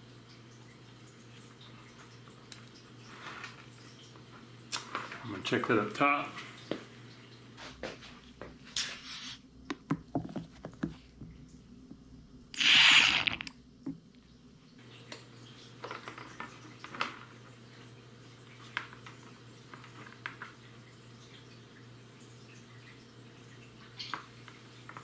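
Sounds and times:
loud sucking hiss: 12.6s - 13.4s.

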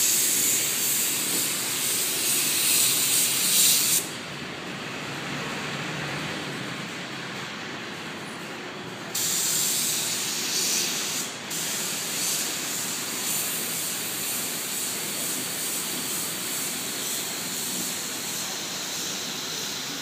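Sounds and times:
spray gun hissing: 0.0s - 4.1s, 9.2s - 20.0s.

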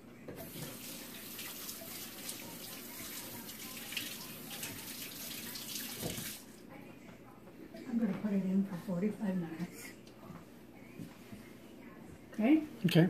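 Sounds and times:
tap water running into sink: 0.4s - 6.4s.

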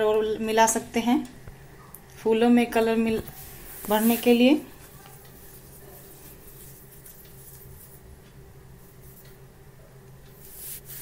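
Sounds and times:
low steady hum: 0.0s - 11.0s
paintbrush scratching on metal: 3.2s - 8.0s, 10.4s - 11.0s.

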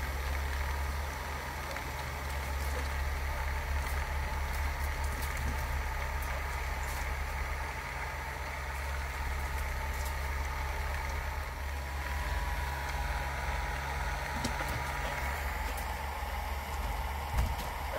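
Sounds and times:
low mechanical hum: 0.0s - 17.9s
thin steady whine: 0.0s - 17.9s.

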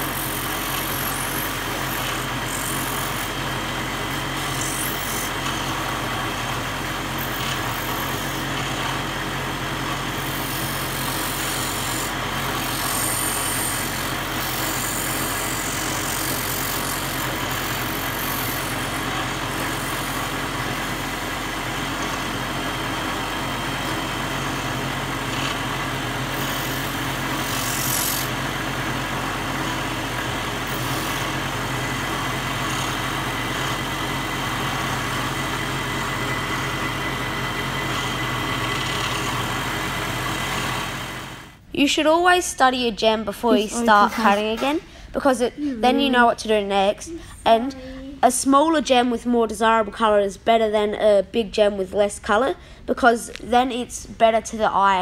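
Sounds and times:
stone grinding hiss: 0.0s - 3.3s, 4.4s - 5.3s, 10.2s - 20.3s, 26.3s - 28.3s, 30.7s - 31.3s
grinding machine motor hum: 0.0s - 41.6s.

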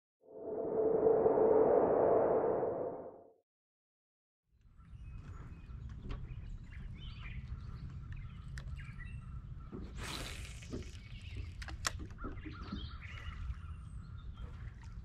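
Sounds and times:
broad whooshing sweep: 0.3s - 3.2s
birds chirping: 4.7s - 10.0s, 11.0s - 15.0s.

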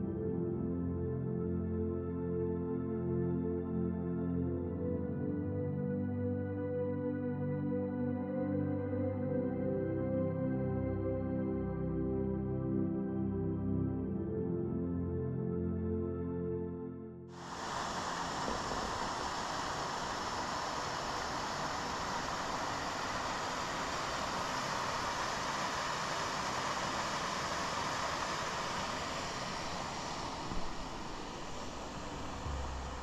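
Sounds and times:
water rushing down rocks: 17.5s - 33.0s.

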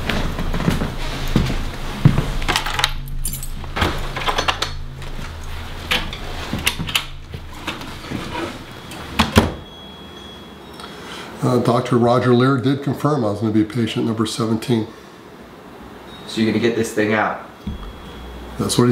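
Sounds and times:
footsteps on a wooden floor: 0.0s - 2.5s
low steady hum: 0.0s - 18.9s
metallic clinks and jingles: 2.6s - 4.8s.

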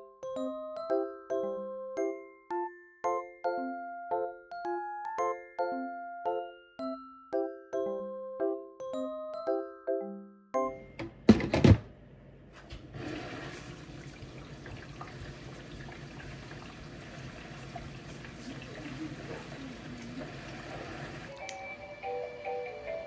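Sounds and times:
running water rushing: 13.0s - 21.4s.

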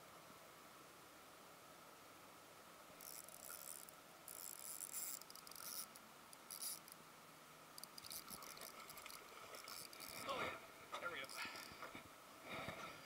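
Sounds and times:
spinning reel cranking: 3.0s - 6.9s, 7.8s - 10.2s, 11.2s - 11.8s.

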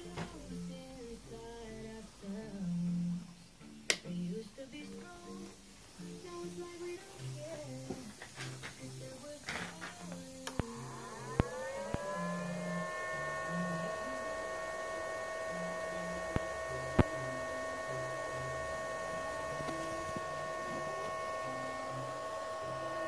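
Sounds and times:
electric motor whine: 0.0s - 23.0s
sharp clicks: 9.4s - 10.7s.

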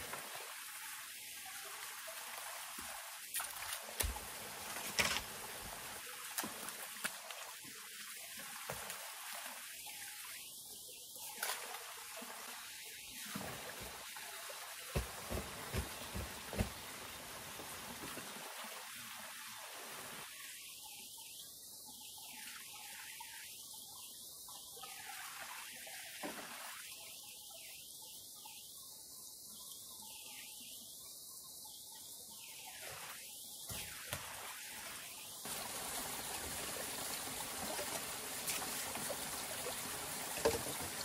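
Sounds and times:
water trickling: 34.1s - 41.0s.

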